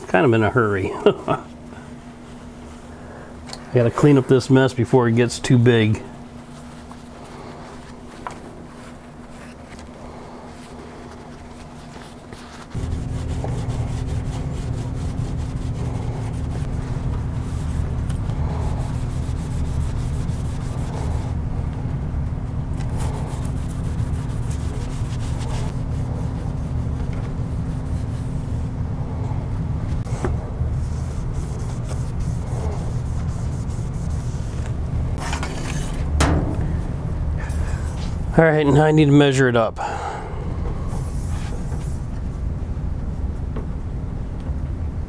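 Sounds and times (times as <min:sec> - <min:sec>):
steady low hum: 0:00.0 - 0:45.0
cloth towel rubbing: 0:05.7 - 0:21.4, 0:22.8 - 0:28.7, 0:30.0 - 0:35.3.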